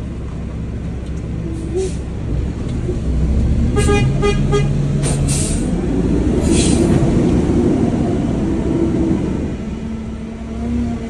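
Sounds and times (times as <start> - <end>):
truck engine running: 0.0 - 10.6
horn toots: 3.7 - 4.8.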